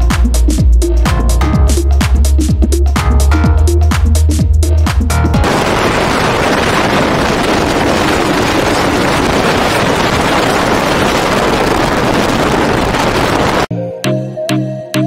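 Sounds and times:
wind and road noise: 0:05.4 - 0:13.7.

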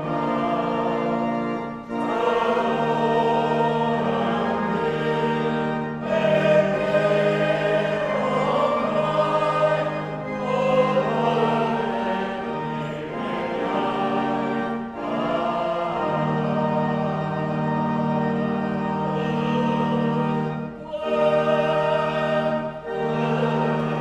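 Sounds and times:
choir singing: 0:00.0 - 0:24.0
organ chords: 0:00.0 - 0:24.0.

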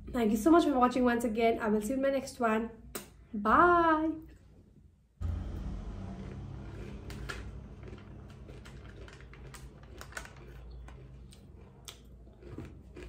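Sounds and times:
low hum: 0:05.2 - 0:12.1
plastic snack packet crinkling: 0:06.8 - 0:13.0.

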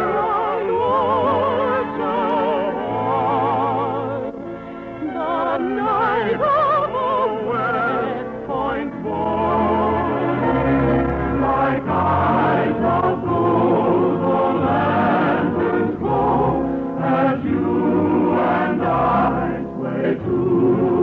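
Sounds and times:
choir singing a waltz: 0:00.0 - 0:21.0
orchestral accompaniment: 0:00.0 - 0:21.0.

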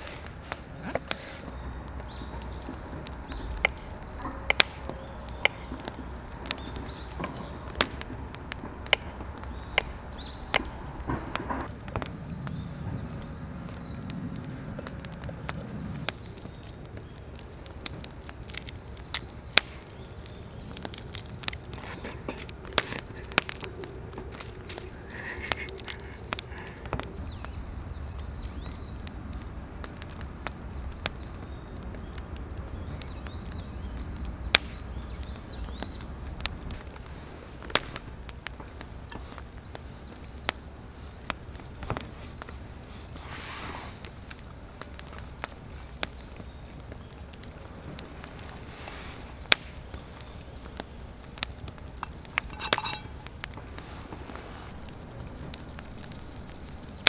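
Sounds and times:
low steady rumble: 0:00.0 - 0:39.8
campfire crackling: 0:00.0 - 0:57.0
sharp fire pops: 0:00.0 - 0:57.0.

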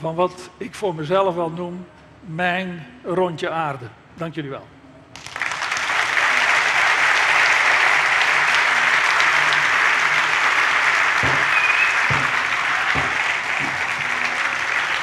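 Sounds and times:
audience applauding: 0:05.1 - 0:15.0.

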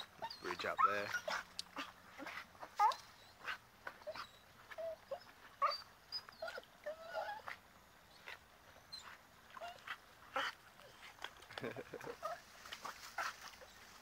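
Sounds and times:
dog whining and yelping: 0:00.0 - 0:07.6.

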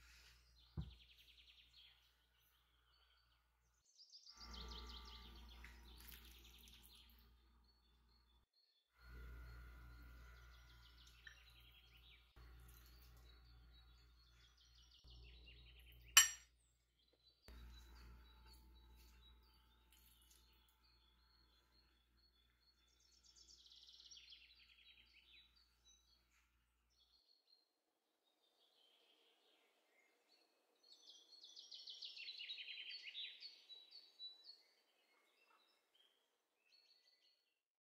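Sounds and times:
faint bird chirping: 0:00.0 - 0:37.5
low steady hum: 0:09.0 - 0:16.4
sharp clink: 0:16.2 - 0:16.5.

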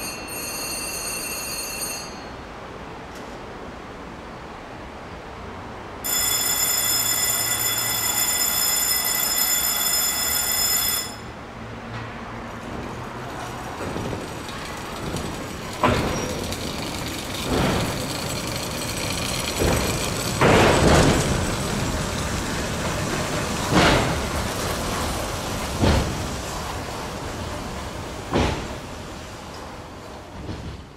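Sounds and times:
signal bell ringing: 0:00.0 - 0:02.4, 0:06.0 - 0:11.4
knocks and clatter: 0:11.9 - 0:21.8, 0:22.8 - 0:26.8, 0:28.3 - 0:28.8.

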